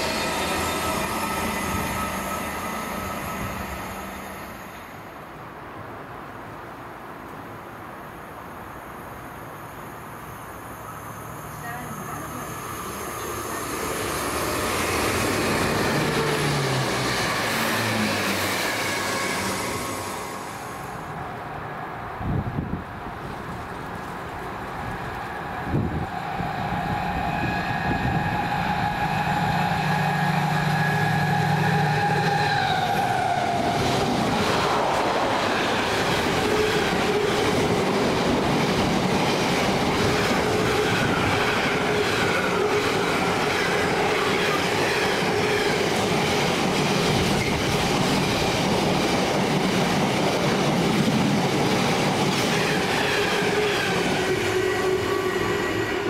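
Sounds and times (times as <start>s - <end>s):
locomotive pitched tone: 0.0s - 4.9s, 25.2s - 34.0s.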